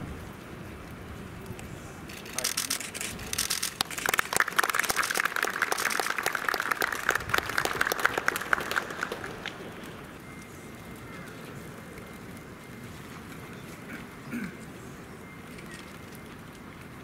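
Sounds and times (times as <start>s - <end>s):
low background noise: 0.0s - 17.0s
small crowd clapping: 3.4s - 10.2s.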